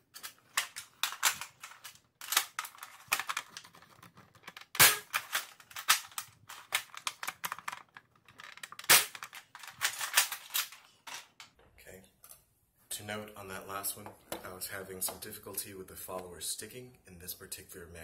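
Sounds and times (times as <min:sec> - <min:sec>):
toy blaster shots: 0:04.8 - 0:05.2.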